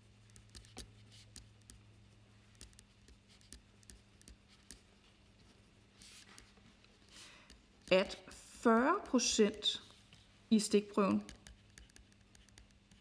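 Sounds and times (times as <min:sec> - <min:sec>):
felt-tip pen scratching paper: 0:11.1 - 0:13.0.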